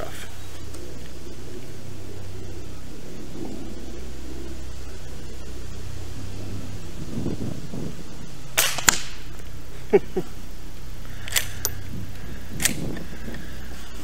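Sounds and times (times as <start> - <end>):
steady low rumble: 0.0 - 14.0
rifle shots: 8.5 - 9.3.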